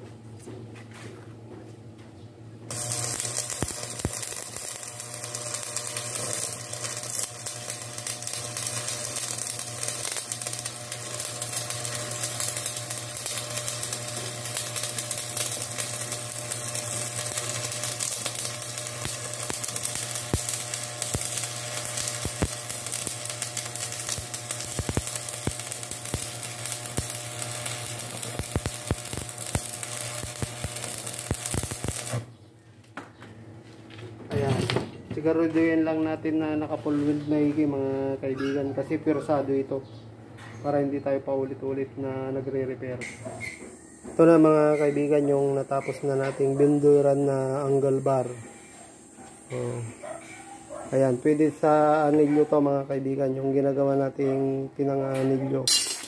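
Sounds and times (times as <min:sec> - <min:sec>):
welding arc crackling sizzle: 0:02.7 - 0:32.3, 0:43.0 - 0:53.7, 0:55.0 - 0:56.0.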